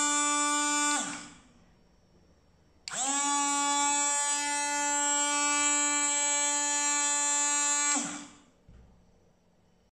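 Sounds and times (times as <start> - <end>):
blender motor whining: 0.0 - 1.4, 2.9 - 8.4.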